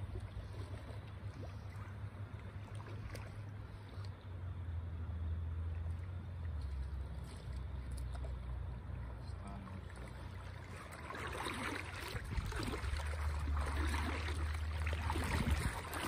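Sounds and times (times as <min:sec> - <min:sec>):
fish splashing in water: 0:00.0 - 0:04.1, 0:09.8 - 0:16.0
low steady rumble: 0:00.0 - 0:16.0.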